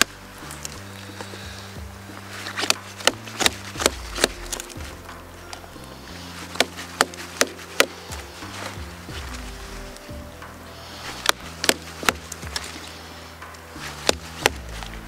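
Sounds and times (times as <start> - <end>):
low background music: 0.0 - 15.0
chopping blows on wood: 11.2 - 12.8, 13.8 - 15.0.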